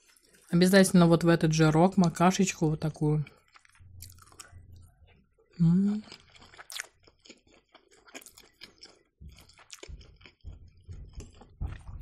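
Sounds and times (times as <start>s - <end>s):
person chewing food: 0.0s - 0.5s, 3.2s - 12.0s.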